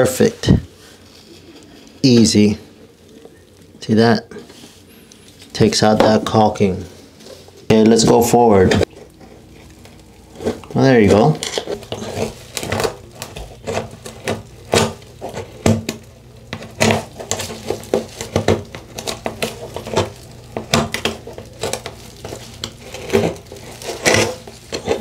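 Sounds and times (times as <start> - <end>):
scraper scratching caulk: 11.6 - 15.6, 20.7 - 25.0.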